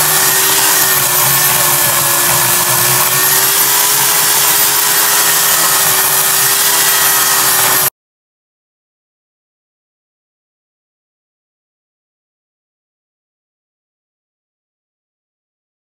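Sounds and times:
electric chainsaw cutting wood: 0.0 - 7.9.

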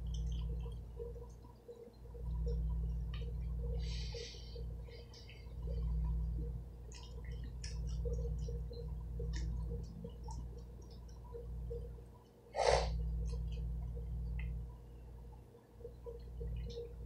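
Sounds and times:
steady low hum: 0.0 - 17.0
nose snort: 12.6 - 13.0.

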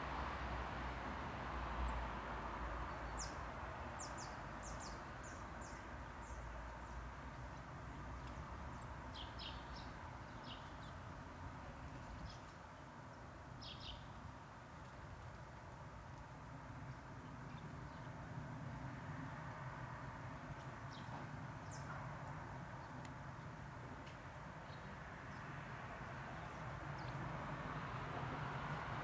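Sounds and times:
outdoor background hiss: 0.0 - 29.0
small birds chipping: 2.8 - 19.6, 20.2 - 27.3.

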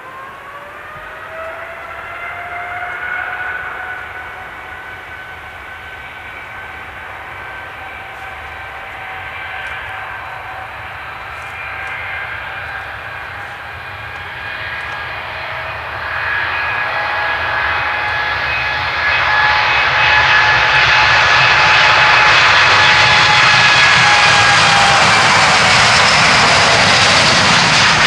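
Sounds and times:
jet engine roar and fan whine: 0.0 - 28.0.

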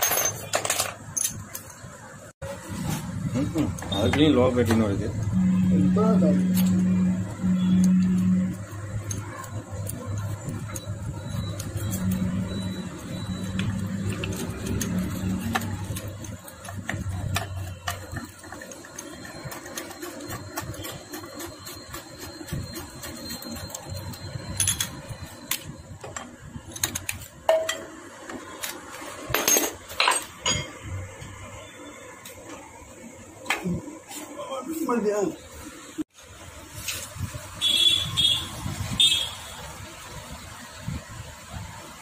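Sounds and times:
metal tools clinking: 0.0 - 1.8, 23.0 - 27.8, 29.3 - 30.8
low steady hum: 2.6 - 19.2.

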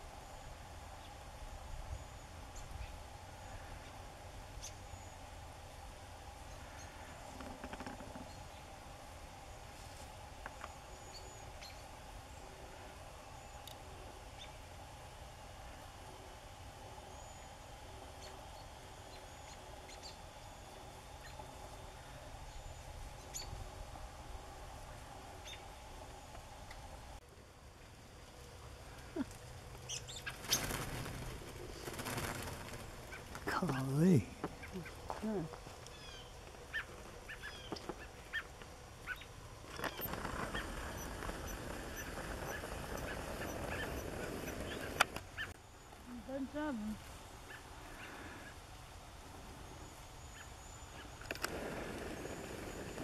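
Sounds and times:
low background hum: 0.0 - 53.0
birds calling: 17.0 - 23.8, 28.8 - 48.7, 49.6 - 53.0.

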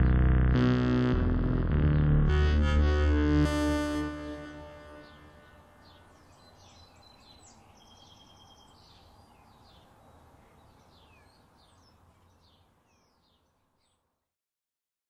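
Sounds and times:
high falling synth chirps: 0.0 - 5.6.

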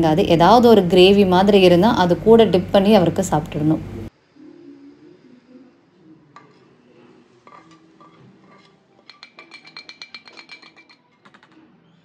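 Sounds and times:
spoon scraping frying pan: 6.4 - 10.0.

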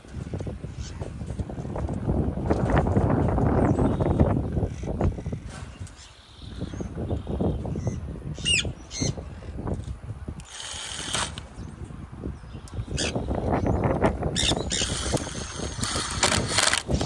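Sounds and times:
cordless drill driving screws: 10.4 - 11.5, 14.7 - 17.0.

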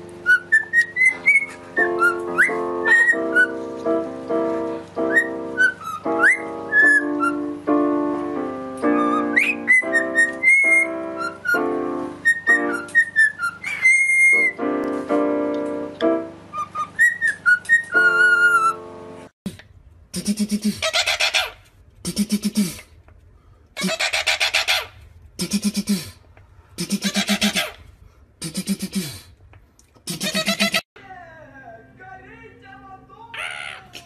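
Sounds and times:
cockatiel whistling a tune: 0.2 - 3.6, 5.0 - 7.5, 8.9 - 14.6, 16.5 - 18.8
electronic keyboard chords: 1.1 - 13.2, 14.3 - 17.0, 17.6 - 19.3.

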